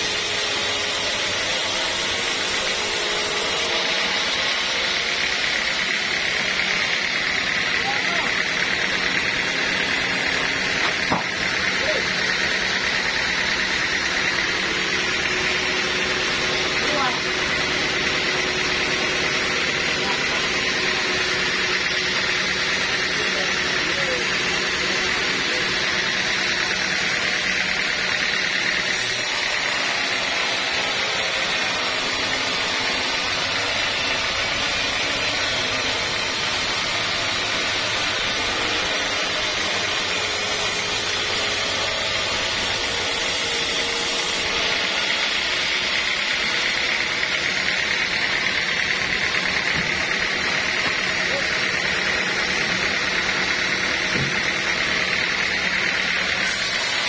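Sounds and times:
band saw cutting log: 0:00.0 - 0:57.0
mill motor hum: 0:24.0 - 0:57.0.

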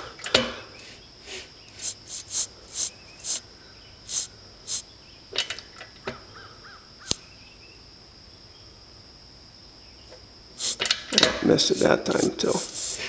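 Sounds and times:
spark plug snap: 0:07.0 - 0:07.2.

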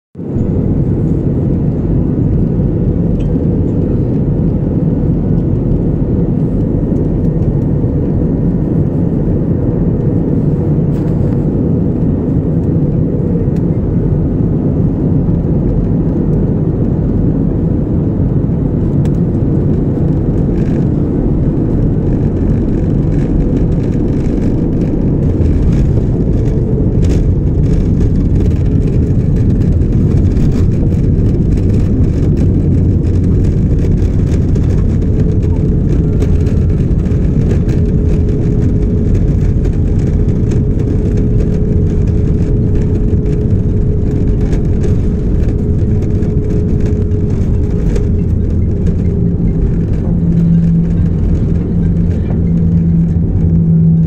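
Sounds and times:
airliner cabin engine rumble: 0:00.2 - 0:54.0.

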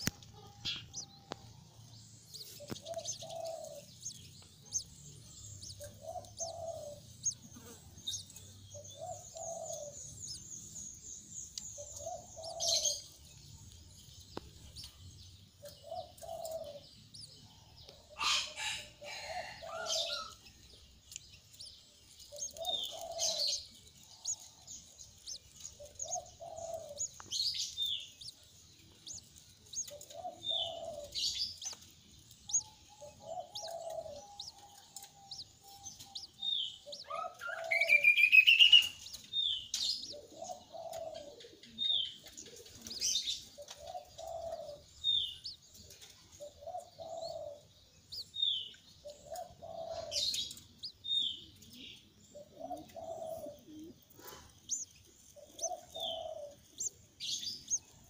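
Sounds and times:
high bird chirps: 0:02.2 - 0:13.4, 0:21.1 - 0:51.6.

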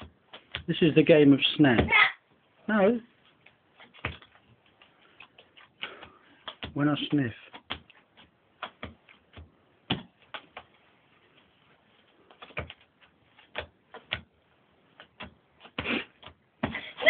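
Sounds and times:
playing cards tapping and clicking: 0:00.0 - 0:00.8, 0:03.2 - 0:16.8
cards scuffing: 0:03.2 - 0:06.8, 0:14.9 - 0:16.8.

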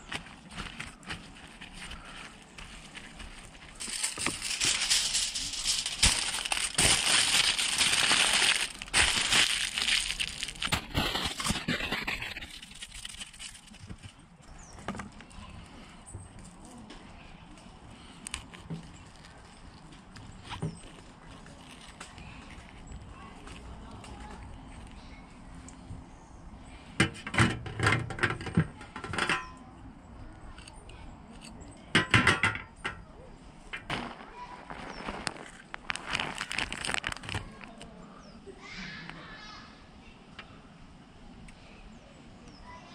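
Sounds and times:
aluminium foil crinkling: 0:00.0 - 0:15.8, 0:17.9 - 0:25.0, 0:33.8 - 0:37.9
metal clinks and scrapes on tray: 0:27.4 - 0:29.6.

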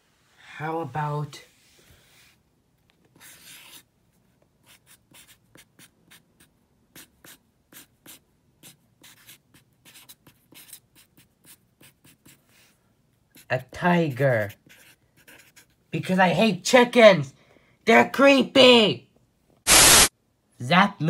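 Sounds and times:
pen scratching on paper: 0:03.1 - 0:03.9, 0:04.6 - 0:16.1.

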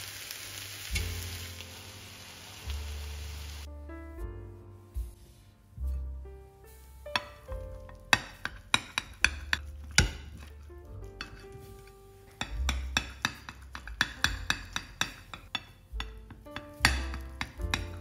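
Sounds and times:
knife tapping ceramic plate: 0:07.2 - 0:10.5, 0:12.4 - 0:18.0.

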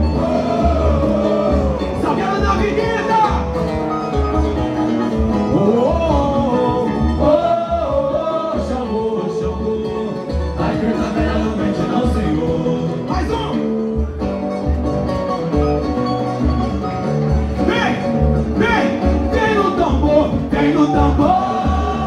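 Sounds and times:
plucked strings: 0:00.0 - 0:22.0
man singing into a microphone: 0:05.4 - 0:13.8, 0:18.6 - 0:22.0.

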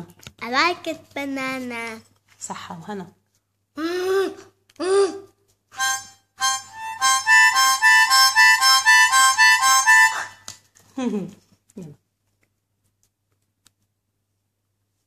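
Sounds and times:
harmonica chords: 0:05.7 - 0:10.4.

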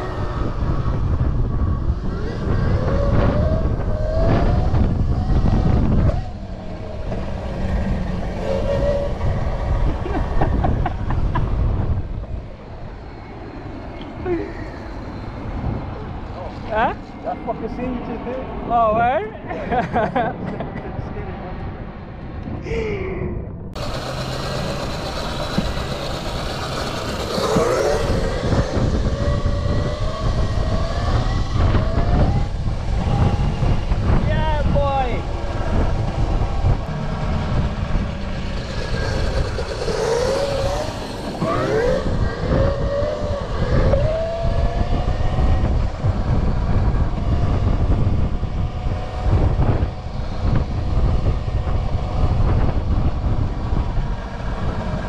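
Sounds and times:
road noise: 0:00.0 - 0:55.0
wind rumbling on microphone: 0:00.0 - 0:55.0
electric motor whine: 0:23.8 - 0:34.2, 0:35.1 - 0:55.0.

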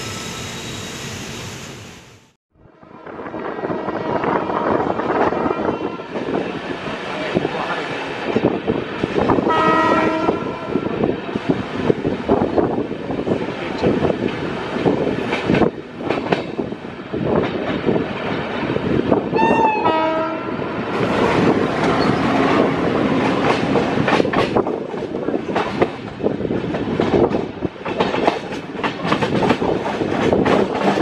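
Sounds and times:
locomotive horn blast: 0:02.6 - 0:06.2, 0:09.5 - 0:11.0, 0:19.4 - 0:20.8.

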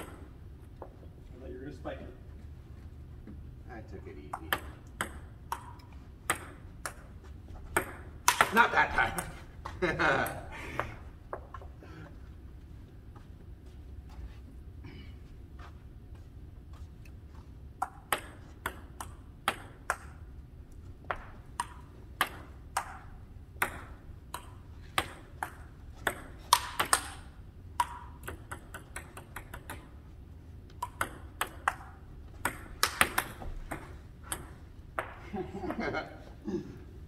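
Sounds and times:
ping-pong ball clicking: 0:04.3 - 0:07.1, 0:07.7 - 0:08.6, 0:17.8 - 0:20.2, 0:21.1 - 0:30.0, 0:30.7 - 0:35.2.

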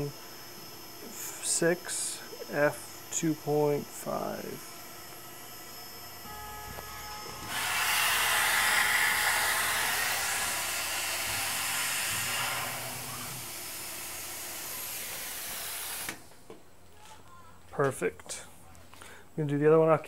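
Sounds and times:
coolant nozzle hissing: 0:07.3 - 0:16.3.

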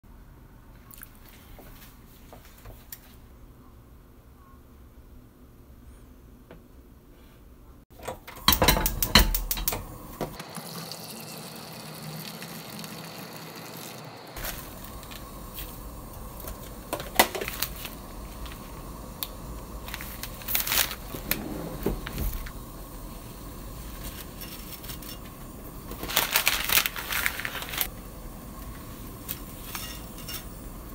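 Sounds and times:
water boiling in a pot: 0:08.3 - 0:30.9.

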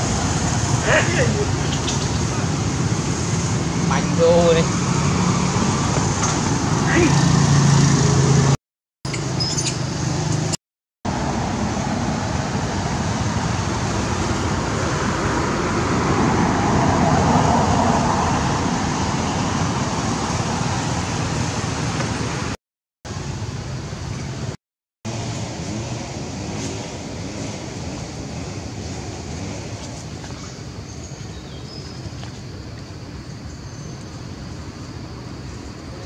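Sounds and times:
vehicle passing: 0:00.0 - 0:08.6, 0:11.1 - 0:22.6
road traffic noise: 0:00.0 - 0:36.0.

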